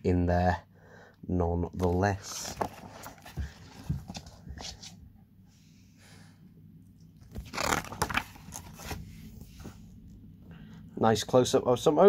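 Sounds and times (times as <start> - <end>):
faint low hum: 0.0 - 12.0
pages turning rustle: 1.8 - 5.0, 7.2 - 9.8.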